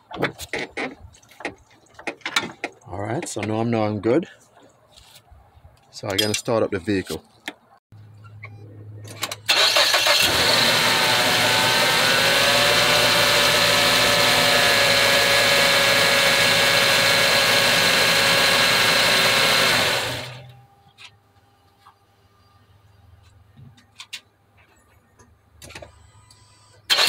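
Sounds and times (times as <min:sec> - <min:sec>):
car engine starting and idling: 0:09.0 - 0:20.6, 0:25.6 - 0:27.0.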